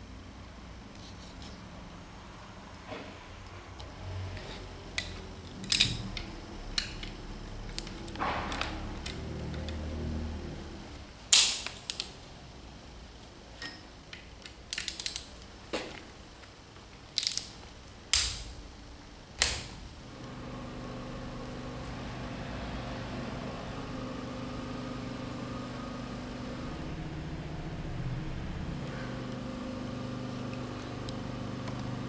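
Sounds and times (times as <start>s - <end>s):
ratcheting torque wrench clicking: 14.7s - 15.4s.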